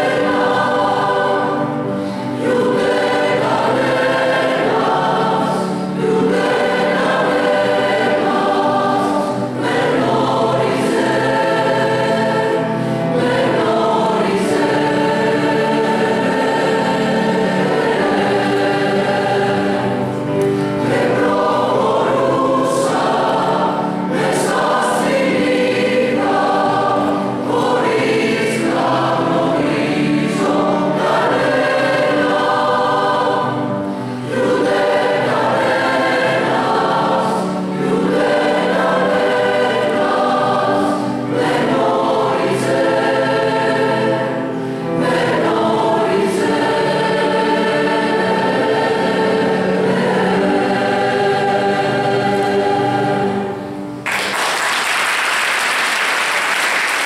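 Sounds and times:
piano accompaniment: 0:00.0 - 0:54.7
choir singing: 0:00.0 - 0:57.0
audience applause: 0:54.0 - 0:57.0.

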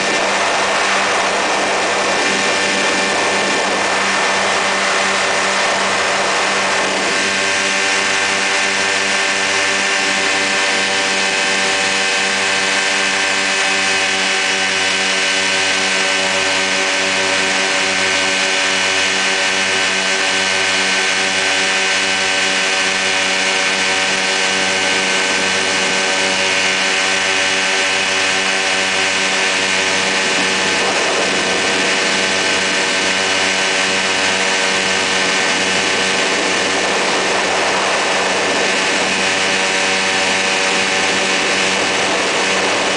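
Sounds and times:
ultralight aircraft engine and propeller: 0:00.0 - 0:42.9.

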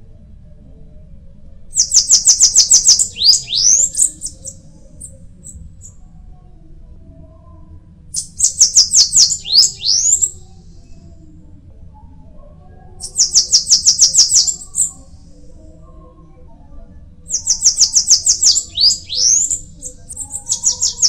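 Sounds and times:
bird singing high sharp notes: 0:01.8 - 0:04.4, 0:08.2 - 0:10.4, 0:13.0 - 0:14.9, 0:17.3 - 0:21.0.

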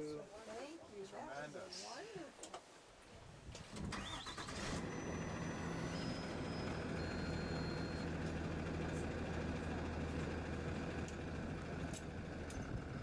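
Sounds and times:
bus engine idling: 0:04.0 - 0:13.0.

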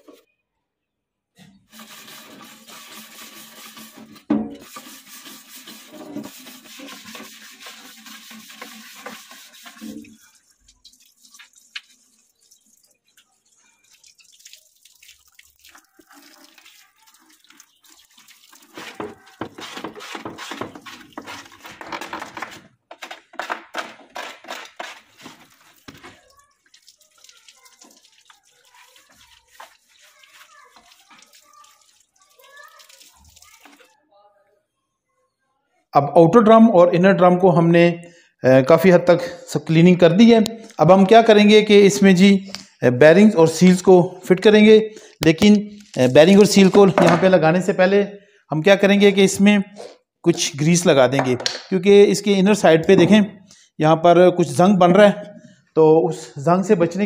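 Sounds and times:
hose water splashing on plastic: 0:01.6 - 0:23.5, 0:24.1 - 0:34.0, 0:45.2 - 0:47.4
wire brush scrubbing steel drum: 0:01.7 - 0:10.6, 0:28.6 - 0:31.3.

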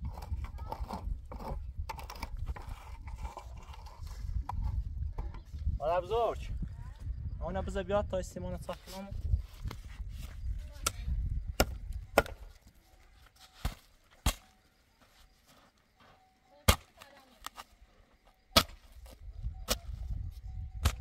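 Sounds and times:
sharp chopping strikes: 0:11.6 - 0:12.4, 0:13.6 - 0:14.5, 0:16.7 - 0:17.0, 0:18.5 - 0:18.9.

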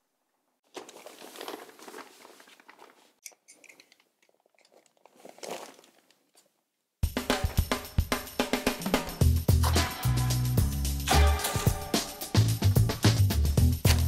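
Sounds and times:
plastic sheeting crinkling: 0:00.6 - 0:03.2, 0:04.7 - 0:06.6.

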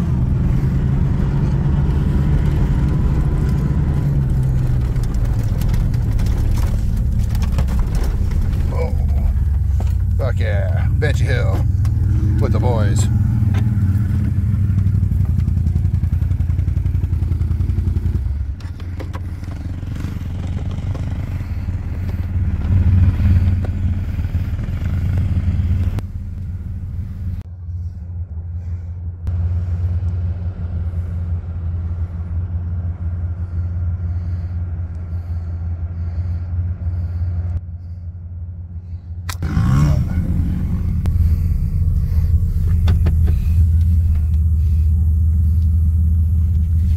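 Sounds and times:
off-road vehicle engine running: 0:00.0 - 0:46.9.

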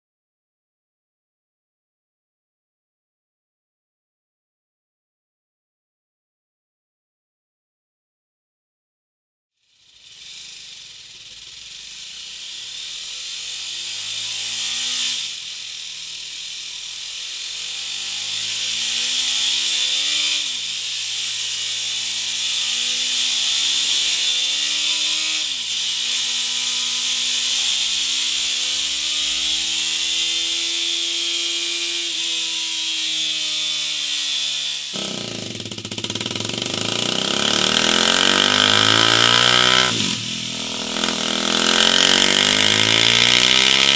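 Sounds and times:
motorcycle engine revving: 0:09.9 - 0:31.2, 0:34.9 - 0:43.9.

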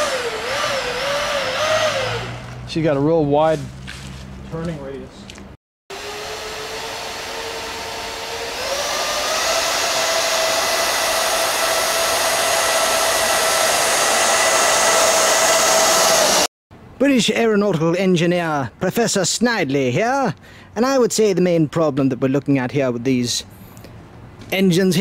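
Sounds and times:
electric ducted fans whining: 0:00.0 - 0:02.9, 0:05.9 - 0:16.5.

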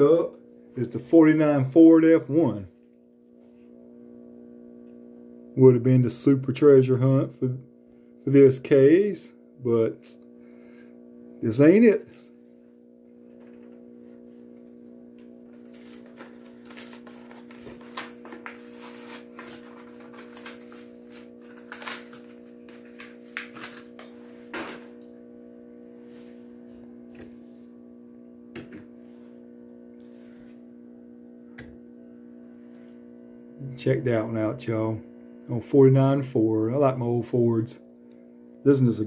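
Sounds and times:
turntable motor hum: 0:00.0 - 0:39.0
plastic packaging clicks and crackles: 0:21.4 - 0:23.8.

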